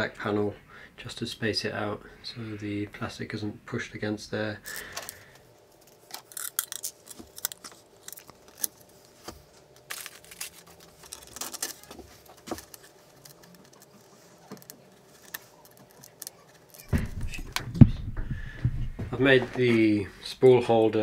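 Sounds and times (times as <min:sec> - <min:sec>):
clicks and rustles of wires: 0:04.7 - 0:19.8.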